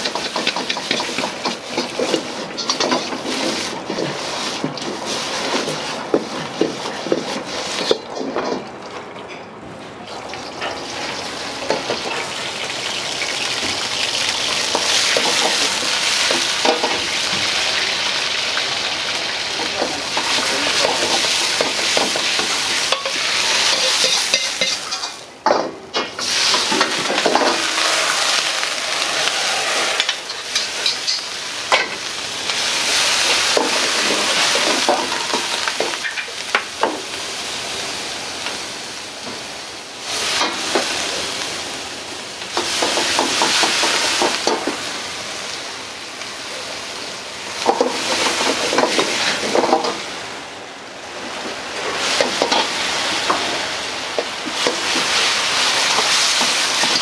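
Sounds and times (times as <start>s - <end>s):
food sizzling in a wok: 0.0s - 8.4s, 10.2s - 25.4s, 26.0s - 57.0s
metal ladle scraping wok: 20.1s - 25.2s, 26.2s - 31.3s.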